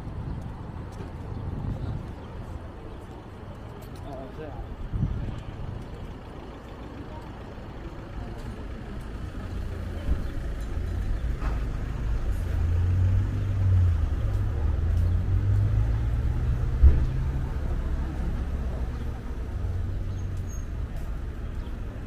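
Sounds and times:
vehicle engine idling: 0.1 - 22.0.

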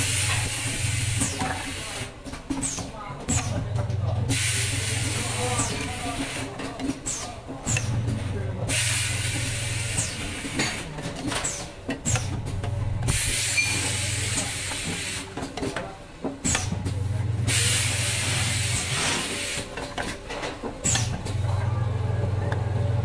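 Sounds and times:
pneumatic cylinders knocking: 0.0 - 21.8
compressed air hissing: 13.0 - 15.3, 17.5 - 19.7
machine low hum: 21.2 - 23.0.

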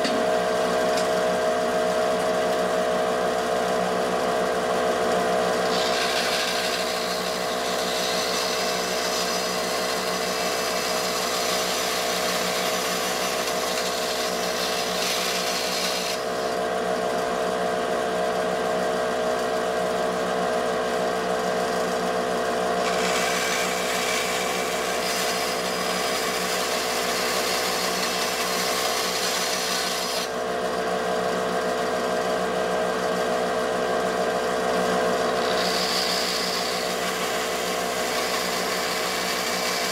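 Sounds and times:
bandsaw running: 4.6 - 17.8, 21.5 - 32.2, 34.5 - 39.9
bandsaw cutting brass with hiss: 5.6 - 16.6, 22.8 - 30.3, 35.4 - 39.9.

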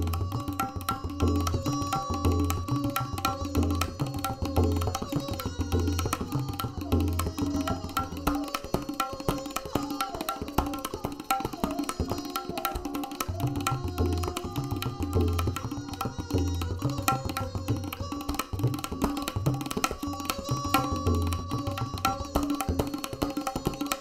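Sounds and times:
fast tabla strokes: 0.0 - 24.0.

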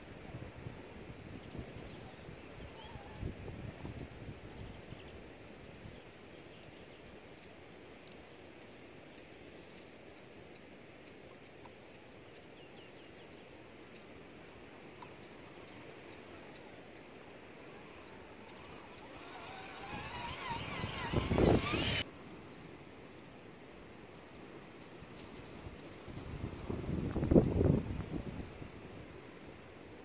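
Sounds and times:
wind rumble on microphone: 0.0 - 6.0, 18.6 - 22.0, 25.1 - 29.4
thin high ticking: 14.9 - 22.0
bird chirps: 15.1 - 22.6.

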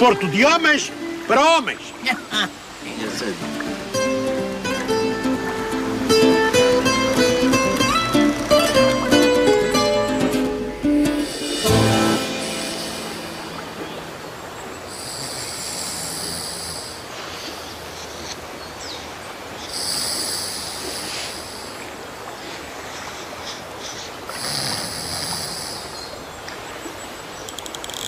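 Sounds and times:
steady outdoor hiss: 0.0 - 28.0
men snoring: 14.9 - 17.1, 24.3 - 26.0.

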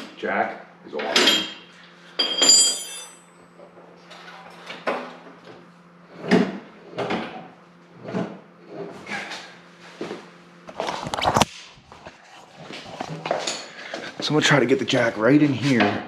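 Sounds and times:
metal clank with ringing: 2.2 - 3.4.

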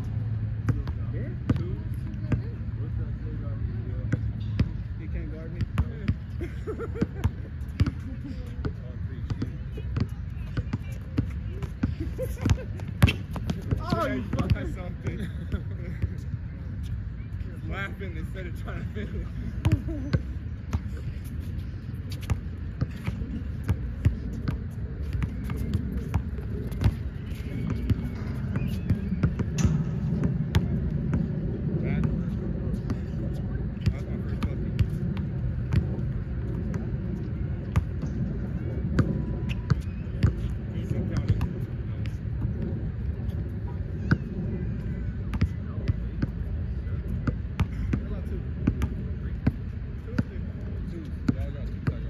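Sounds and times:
steady low rumble: 0.0 - 52.0
basketball bouncing: 0.6 - 2.5, 4.1 - 4.9, 7.0 - 16.2, 19.6 - 31.4, 32.0 - 36.9, 38.9 - 42.7, 47.2 - 49.6
faint voices: 7.5 - 52.0.

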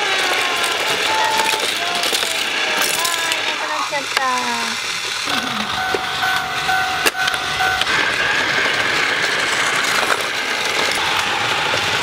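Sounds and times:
toy mechanical whir: 0.0 - 12.0
toy beeping tone: 5.3 - 8.0.

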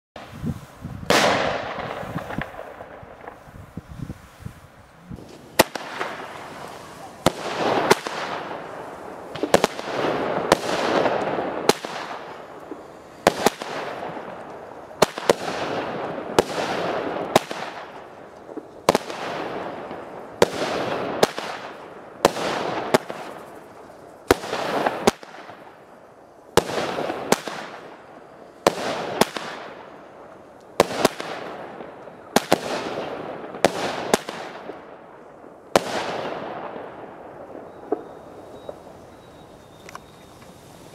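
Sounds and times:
rushing noise after bursts: 0.2 - 11.0
fireworks banging: 0.2 - 40.9.

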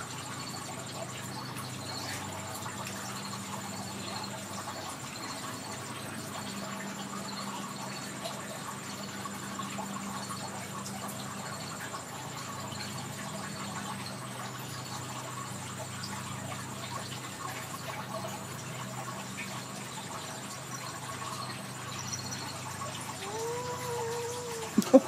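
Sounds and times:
cat mewing: 23.2 - 25.0.

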